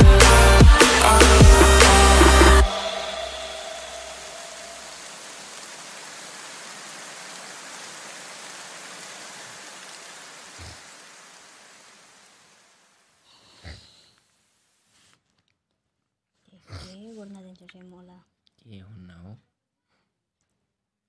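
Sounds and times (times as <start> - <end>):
steady rushing hiss: 0.0 - 13.5.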